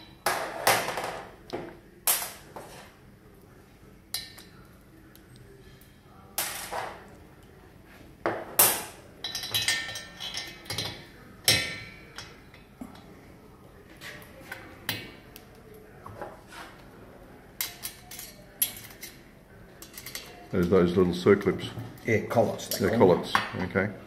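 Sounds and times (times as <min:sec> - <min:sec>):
metal tools knocking and clinking: 0:09.2 - 0:12.7.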